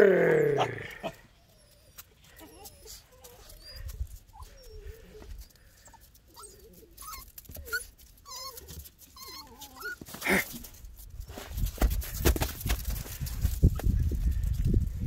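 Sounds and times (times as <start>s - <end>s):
puppies whimpering: 0.8s - 10.4s.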